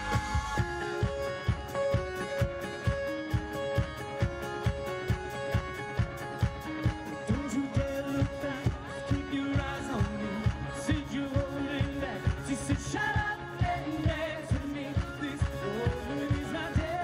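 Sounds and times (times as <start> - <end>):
drum kit beat: 0.0 - 17.0
live pop-rock band: 0.0 - 17.0
person singing: 6.8 - 17.0.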